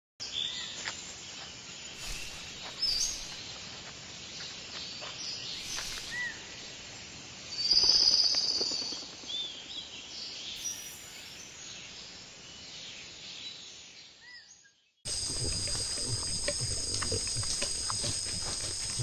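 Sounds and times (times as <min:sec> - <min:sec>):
steady outdoor hiss: 0:00.2 - 0:14.3, 0:15.1 - 0:19.0
birds chirping: 0:01.8 - 0:03.6, 0:05.3 - 0:06.7, 0:15.1 - 0:19.0.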